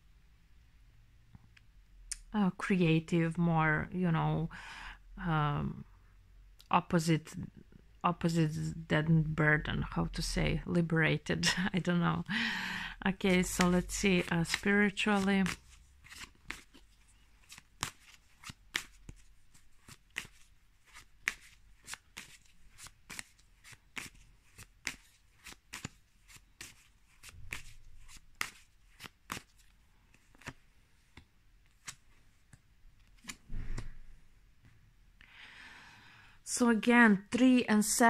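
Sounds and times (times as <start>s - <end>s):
cards shuffling: 13.1s - 34.1s.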